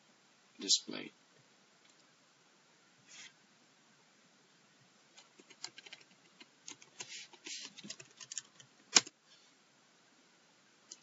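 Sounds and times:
typing on computer keyboard: 5.2s - 9.1s.

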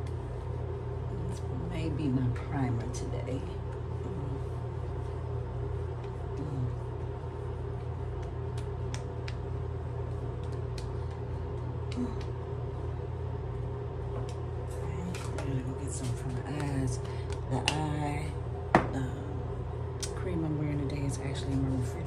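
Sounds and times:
ventilation fan humming: 0.0s - 22.0s
hands patting skin: 5.8s - 12.4s.

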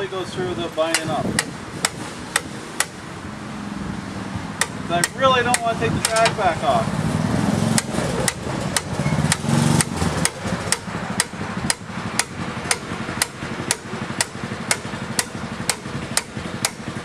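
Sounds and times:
hammer striking metal pin: 0.9s - 3.0s, 4.6s - 6.4s, 7.7s - 16.9s.

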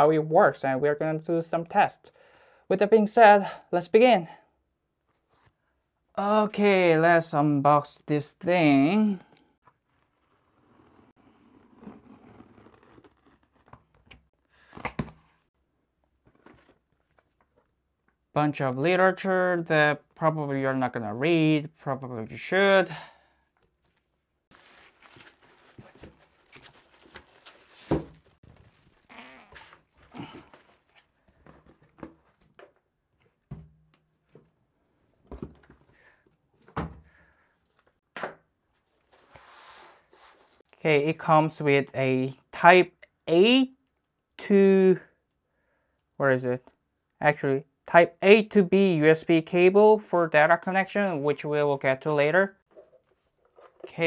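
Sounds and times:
cardboard box tearing open: 10.1s - 14.1s
packing rustling: 24.5s - 32.8s.

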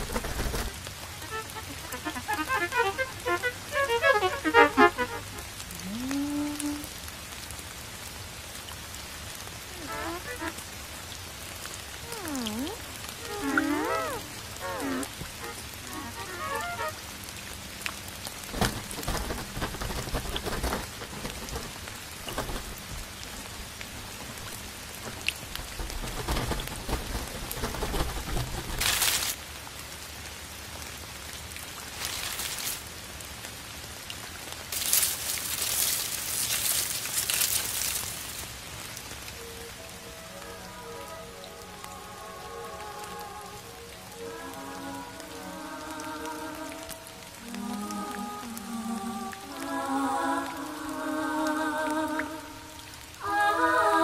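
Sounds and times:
rain-like hiss: 0.0s - 54.0s
bursts of bright hiss: 9.7s - 10.8s, 12.0s - 17.3s
wavering gliding tones: 12.1s - 17.0s
low thuds: 18.5s - 28.9s.

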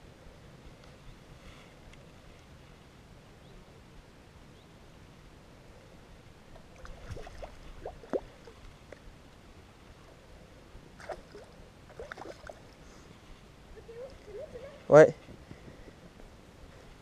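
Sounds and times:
small water splashes and drips: 6.6s - 9.0s, 11.0s - 12.8s.

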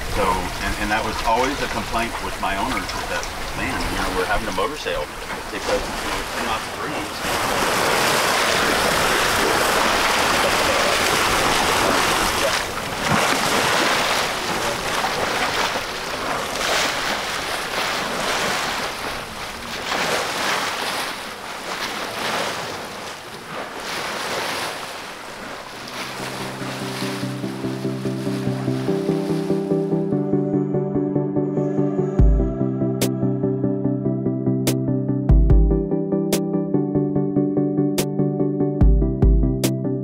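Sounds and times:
water rushing along boat hull: 0.0s - 30.4s.

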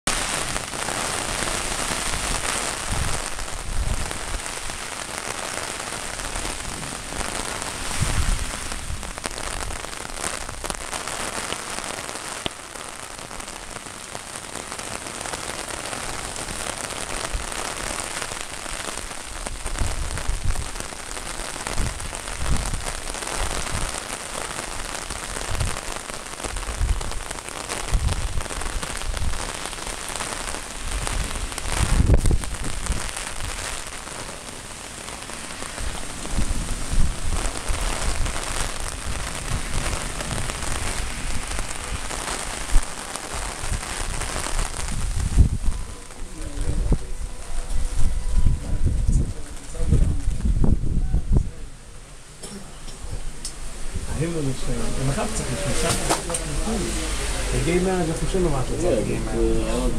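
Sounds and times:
steady rain pattering: 0.0s - 59.9s
low rumbles: 52.9s - 59.9s.

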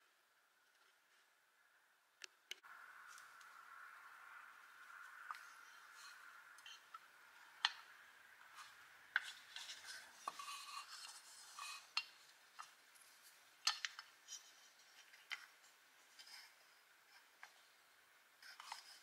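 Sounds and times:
small parts clicking and scraping: 4.9s - 17.8s, 18.4s - 19.0s.

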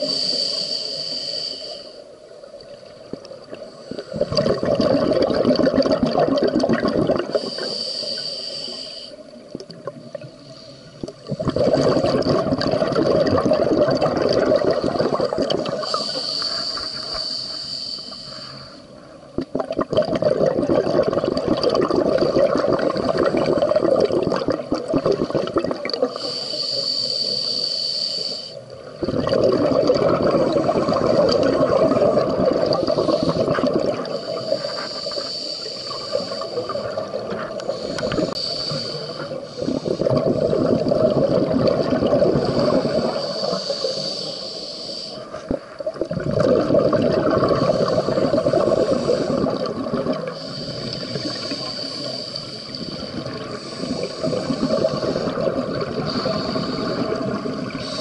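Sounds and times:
regulator hissing inhale: 0.0s - 2.8s, 7.3s - 9.4s, 10.2s - 11.3s, 14.9s - 19.2s, 26.1s - 28.8s, 31.8s - 40.8s, 42.3s - 45.7s, 47.4s - 58.0s
bubbling exhale: 3.5s - 9.2s, 10.5s - 58.0s.

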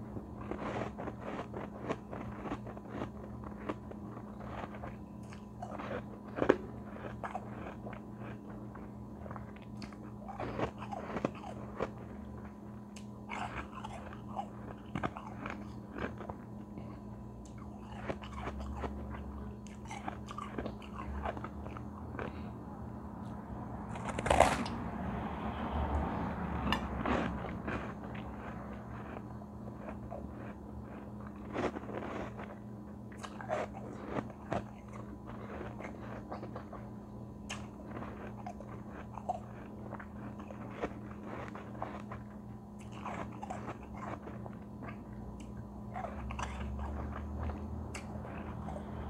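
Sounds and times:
low electrical hum: 0.0s - 49.0s
biting and crunching ice: 0.4s - 12.0s.

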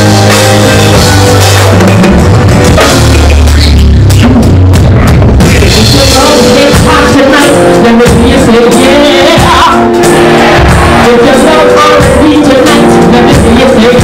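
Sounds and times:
live band playing: 0.0s - 14.0s
woman singing: 5.8s - 9.9s, 11.0s - 14.0s.

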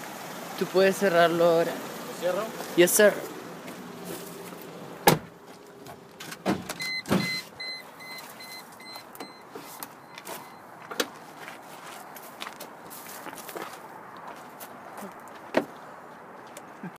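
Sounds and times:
car door thumping shut: 5.0s - 5.4s, 6.3s - 7.4s
car warning chime beeps: 6.8s - 10.7s.

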